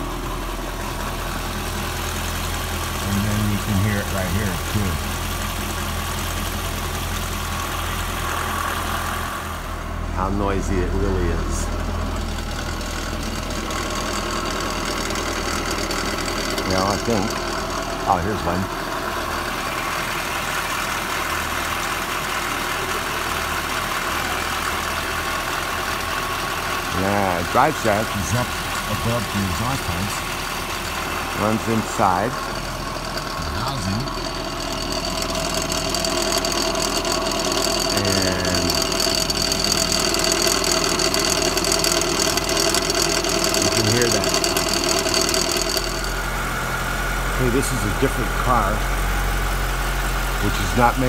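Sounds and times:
driveshaft mechanical drone: 0.0 - 6.8, 7.7 - 51.0
mechanical running noise: 26.8 - 46.5.

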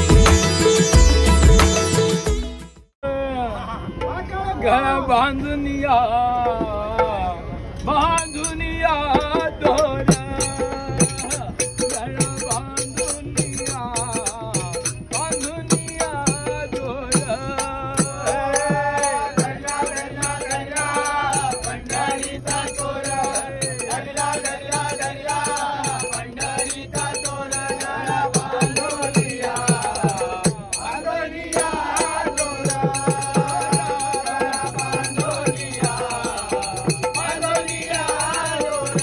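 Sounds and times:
men singing devotional song: 3.0 - 39.0
hand cymbals struck: 8.0 - 39.0.

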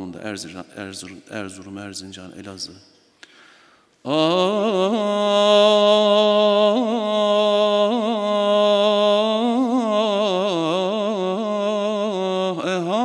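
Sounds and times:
man singing unaccompanied: 4.1 - 13.0.

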